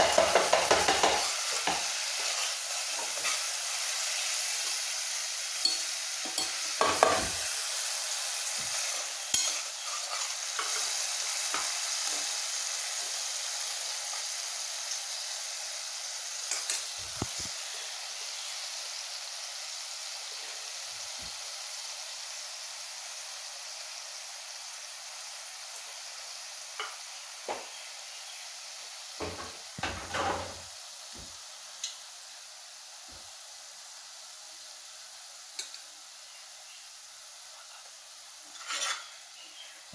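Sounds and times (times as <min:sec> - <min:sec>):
sauce sizzling in a pan: 0:00.0 - 0:39.9
utensil scraping a pan: 0:08.6 - 0:11.6, 0:38.5 - 0:39.2.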